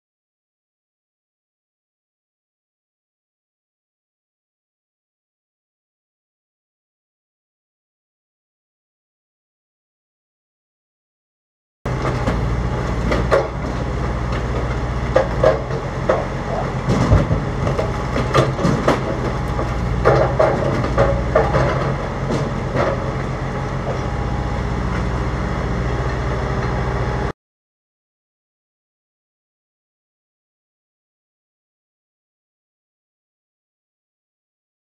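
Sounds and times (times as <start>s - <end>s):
wood knocking and falling: 11.9s - 24.2s
diesel engine running: 11.9s - 27.3s.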